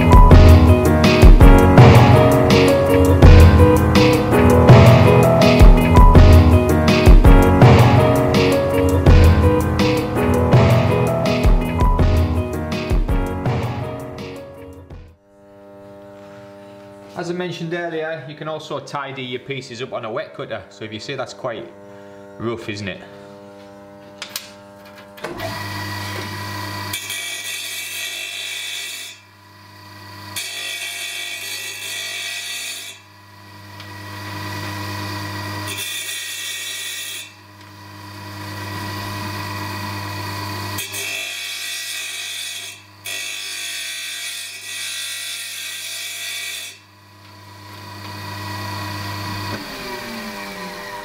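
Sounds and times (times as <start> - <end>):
tile saw motor hum: 0.0 - 18.0, 19.2 - 51.0
saw blade grinding tile: 25.5 - 46.8.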